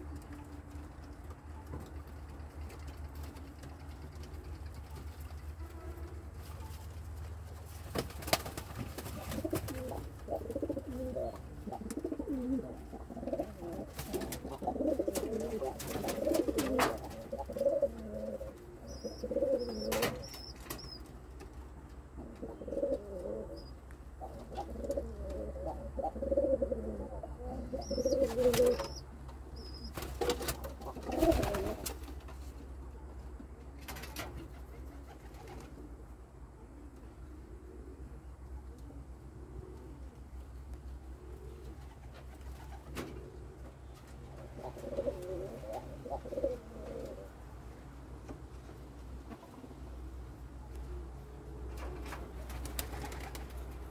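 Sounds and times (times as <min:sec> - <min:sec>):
pigeons cooing: 0:09.0 - 0:21.0, 0:22.1 - 0:31.9, 0:36.6 - 0:47.4.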